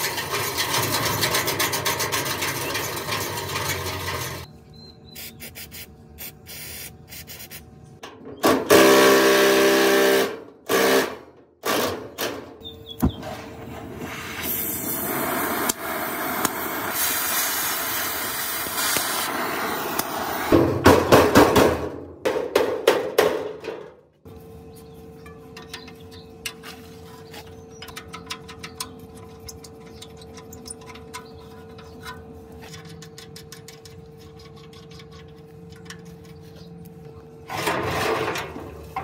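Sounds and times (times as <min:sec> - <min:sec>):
tool squealing on metal: 0:00.0 - 0:05.4
gas torch flame hissing: 0:13.5 - 0:20.6.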